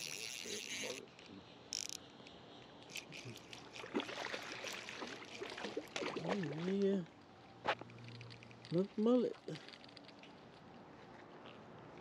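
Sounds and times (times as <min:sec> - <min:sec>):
fishing reel clicks: 0:00.0 - 0:02.1, 0:02.8 - 0:03.9
fish splashing at surface: 0:03.0 - 0:06.9.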